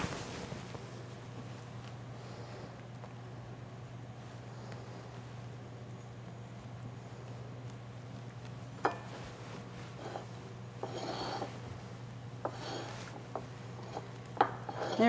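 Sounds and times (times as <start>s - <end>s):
cloth rubbing on ceramic plate: 9.0s - 11.7s, 12.4s - 15.0s.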